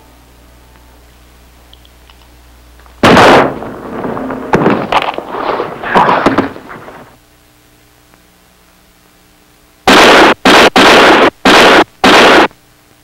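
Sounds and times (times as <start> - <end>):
faint hum: 0.0 - 13.0
gunshots: 3.0 - 7.2, 9.9 - 12.5.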